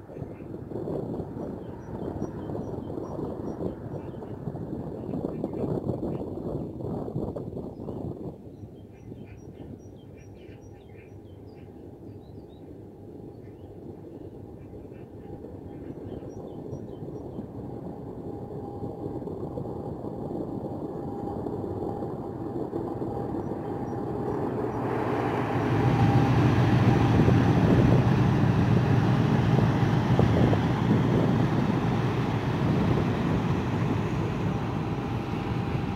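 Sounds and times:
barge engine rumbling drone: 14.8 - 35.9.

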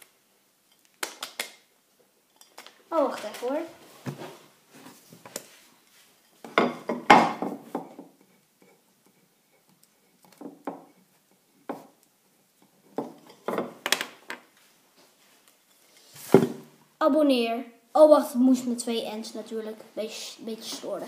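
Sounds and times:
objects clattering and knocking: 6.3 - 8.3, 12.7 - 14.5, 16.2 - 16.8.

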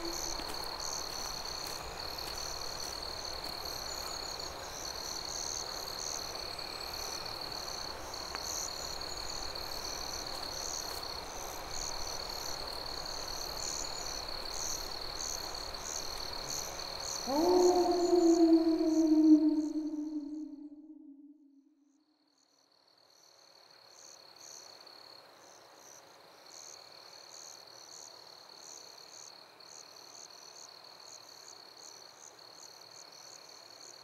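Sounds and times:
insects trilling: 0.0 - 21.3.

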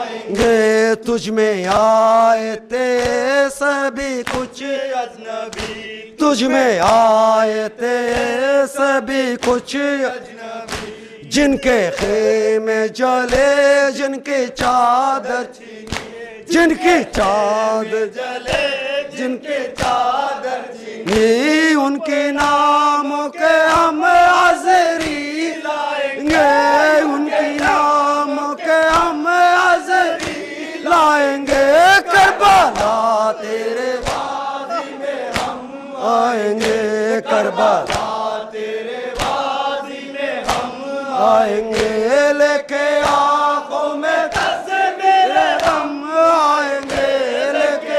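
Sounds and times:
men chanting: 0.0 - 47.9
man leading over microphone: 6.2 - 7.7, 11.2 - 12.9, 16.5 - 17.7.

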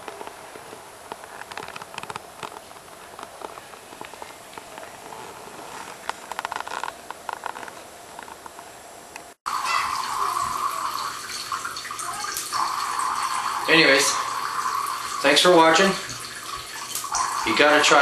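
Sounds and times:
water dripping into metal cans: 9.5 - 18.0.

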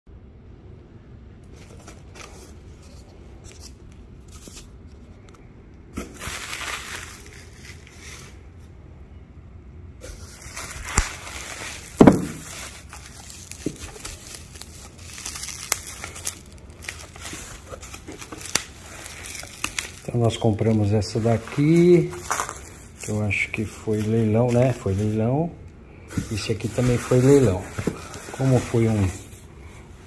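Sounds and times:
bubble wrap crinkling and crackling: 6.0 - 8.5, 10.0 - 30.0
dull thump: 12.0 - 12.5.

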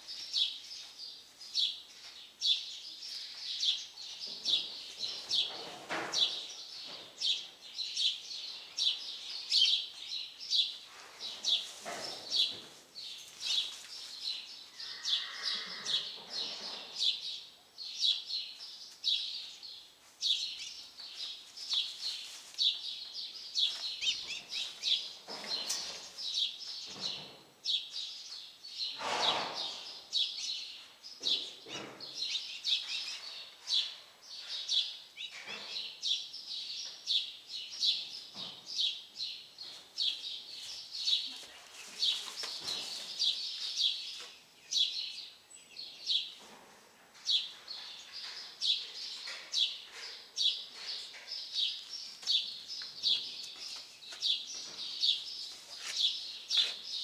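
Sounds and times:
small birds chirping: 0.0 - 46.6, 47.2 - 57.0
soft rustling: 21.0 - 24.1.

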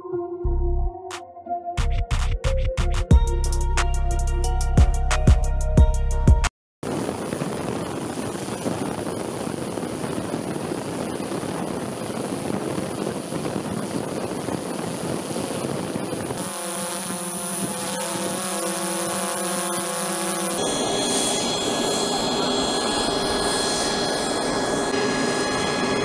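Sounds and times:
high whine: 6.8 - 26.0.

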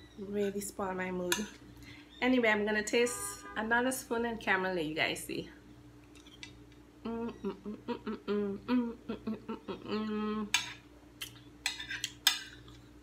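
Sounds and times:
woman humming in enjoyment: 7.0 - 10.6
metal spoon clinking on a plate: 11.6 - 12.7.

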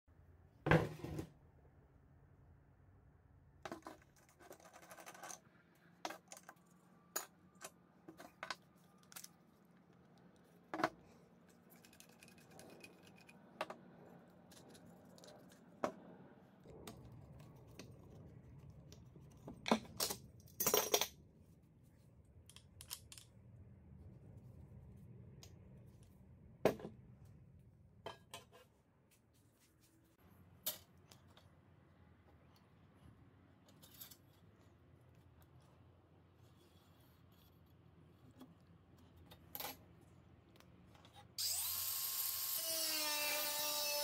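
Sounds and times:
parts set down on wooden table: 0.7 - 1.3.

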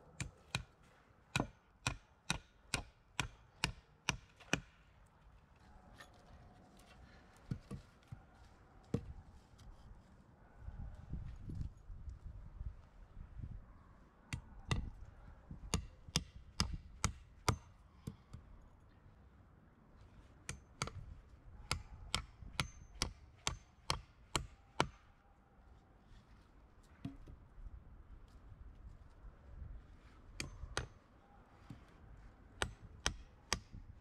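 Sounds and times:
hand tool striking wood: 1.3 - 4.7.

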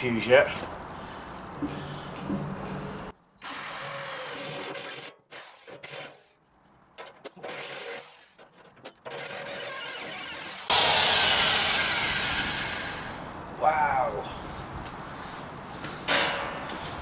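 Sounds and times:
electric drill cutting metal: 9.1 - 13.2.

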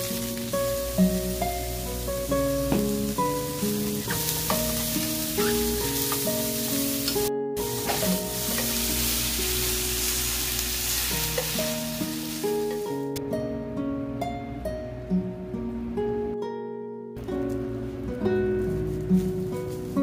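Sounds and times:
cabbage sizzling in a frying pan: 0.0 - 13.2, 17.4 - 20.0.

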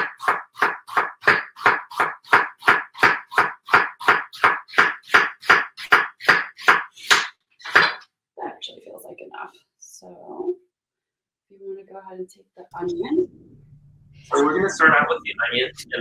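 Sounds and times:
knife slicing onion on board: 0.0 - 8.0.

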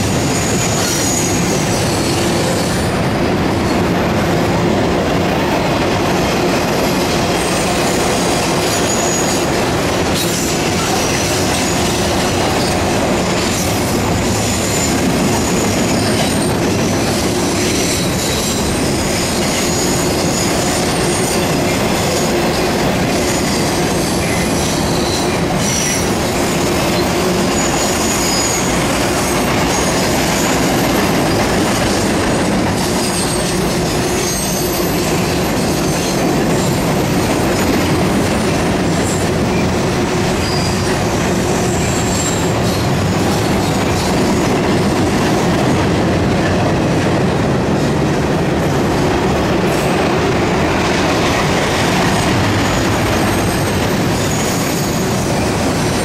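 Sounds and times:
train rumbling on rails: 0.0 - 56.0
high-pitched wheel squeals: 0.2 - 2.9, 8.6 - 9.6, 27.0 - 31.4, 32.8 - 36.9, 40.4 - 44.1, 53.2 - 56.0.

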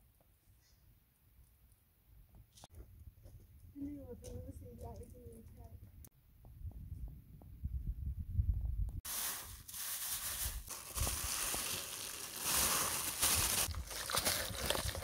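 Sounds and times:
low wind rumble: 5.4 - 9.1
rice poured into plastic basin: 9.1 - 15.0.

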